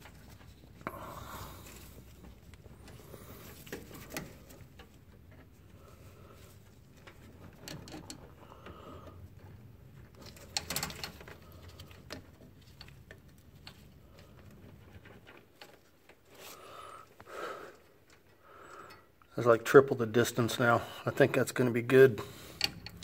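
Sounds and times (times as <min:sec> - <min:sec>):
metal brake lines clicking: 0:22.4 - 0:23.0.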